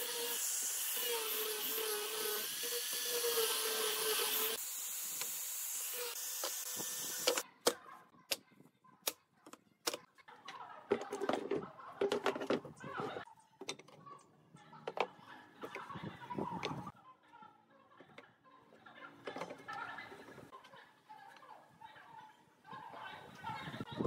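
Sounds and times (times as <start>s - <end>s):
angle grinder sanding wood: 0.0s - 7.4s.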